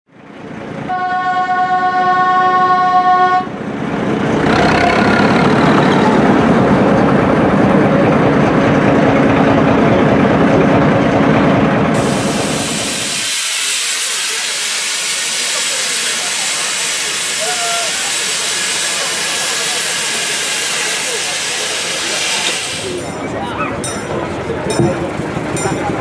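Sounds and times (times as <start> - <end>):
train running rushing noise: 0.1 - 26.0
locomotive horn blast: 0.9 - 3.6.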